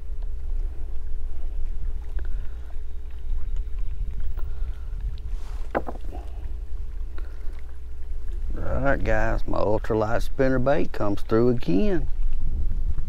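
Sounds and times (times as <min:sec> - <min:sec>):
wind on microphone: 0:00.0 - 0:13.0
hands unhooking fish: 0:05.4 - 0:06.4.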